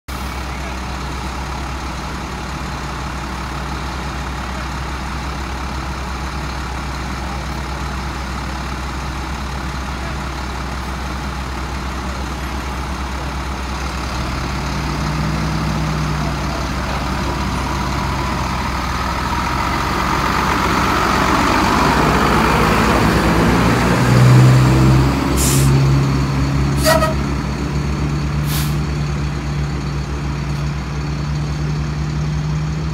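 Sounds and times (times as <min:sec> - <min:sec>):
truck diesel engine revving: 0:00.1 - 0:32.9
air brake hisses: 0:25.4 - 0:25.8, 0:28.4 - 0:28.8.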